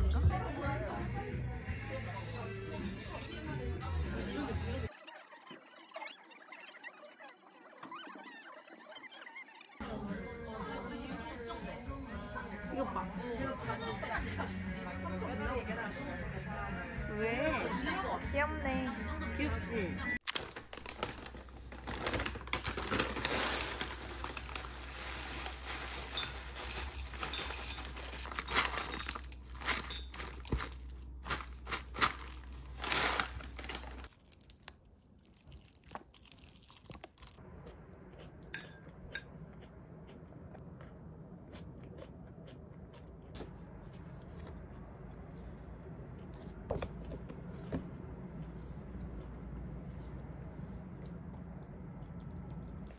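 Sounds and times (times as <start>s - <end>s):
paper rustling and crinkling: 20.2s - 34.7s.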